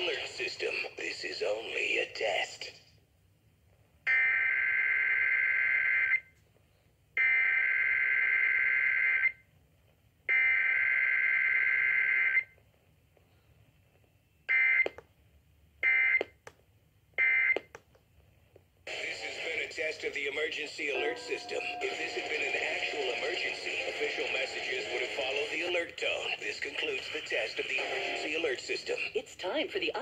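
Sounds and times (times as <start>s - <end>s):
buzzy data bursts from radio: 18.9s - 25.6s.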